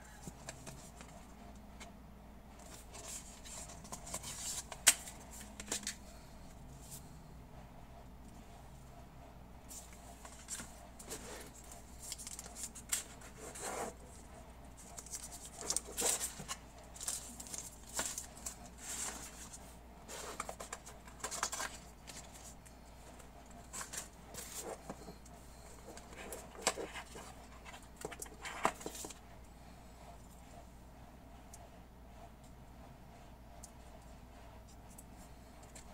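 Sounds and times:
cardboard box rustling and scraping: 14.8s - 22.6s, 23.6s - 29.2s.

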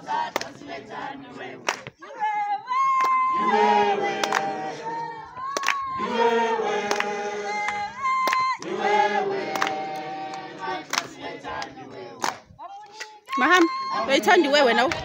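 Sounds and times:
crowd singing in chorus: 0.0s - 15.0s.

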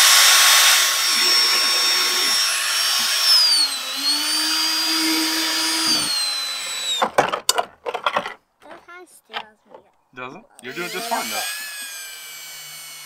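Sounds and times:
cordless drill whining: 0.0s - 7.2s, 10.6s - 13.0s.

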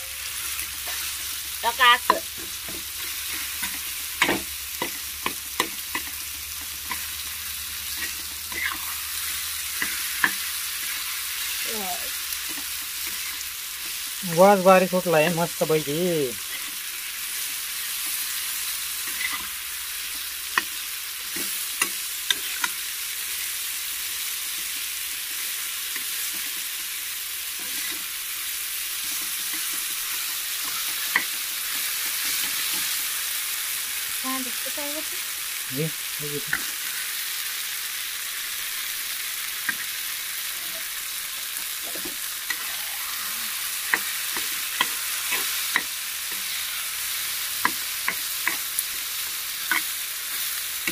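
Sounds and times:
food sizzling in oil: 0.0s - 50.9s
spatula scraping pan: 7.8s - 11.4s, 19.0s - 22.8s, 39.6s - 48.9s.

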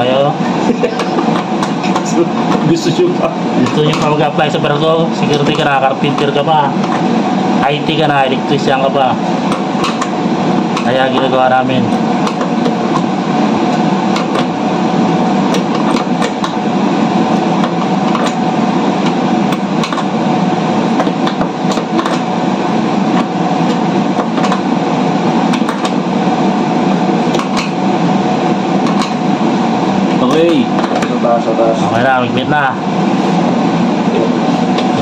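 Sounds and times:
loud machinery hum: 0.0s - 35.0s.

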